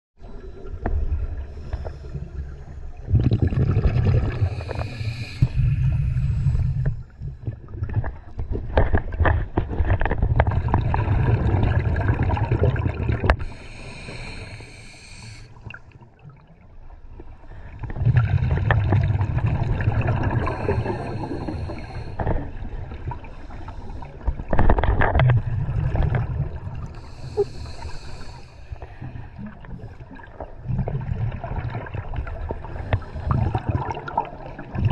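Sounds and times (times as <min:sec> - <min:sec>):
exhaled bubbles gurgling underwater: 0:00.2 - 0:34.9
regulator inhalation hiss: 0:04.4 - 0:06.9, 0:13.4 - 0:15.6, 0:20.5 - 0:22.2, 0:27.0 - 0:29.0.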